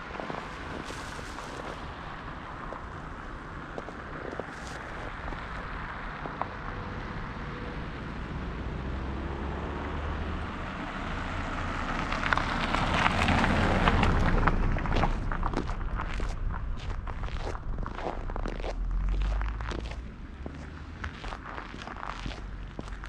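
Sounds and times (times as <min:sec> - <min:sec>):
footsteps crunching on snow: 0:00.0 - 0:02.0, 0:03.8 - 0:05.6, 0:14.0 - 0:23.0.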